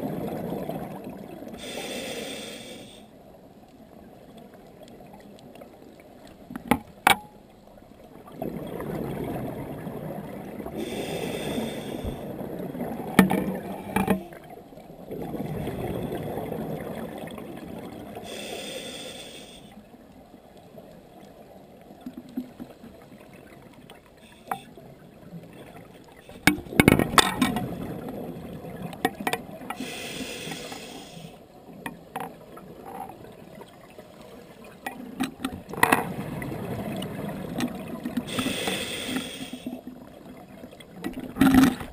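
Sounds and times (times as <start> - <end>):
regulator hiss on inhale: 1.6 - 3.2, 10.8 - 12.3, 18.2 - 19.8, 24.2 - 24.8, 29.7 - 31.4, 38.3 - 39.9
bubbling rush on exhale: 15.1 - 19.6
sharp clicks and knocks: 26.3 - 27.7.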